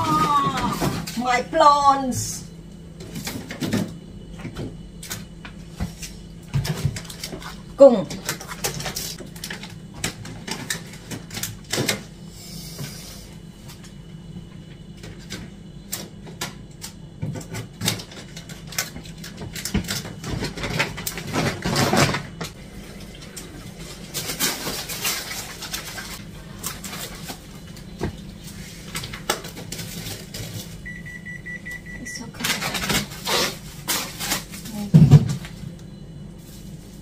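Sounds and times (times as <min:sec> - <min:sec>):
steady low hum: 0:00.0 - 0:37.0
items knocking and clattering: 0:17.2 - 0:22.5, 0:33.9 - 0:35.6
plastic bags rustling: 0:23.7 - 0:31.0, 0:32.3 - 0:35.6, 0:36.4 - 0:37.0.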